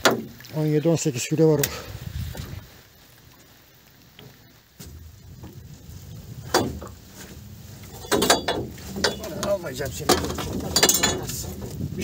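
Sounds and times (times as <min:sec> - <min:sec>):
net knocking against boat hull: 0:00.0 - 0:00.4, 0:06.4 - 0:07.3, 0:07.9 - 0:11.8.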